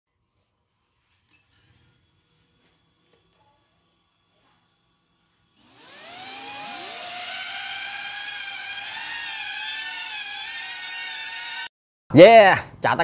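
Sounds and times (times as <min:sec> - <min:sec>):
drone motors whining and buzzing: 0:05.6 - 0:11.7.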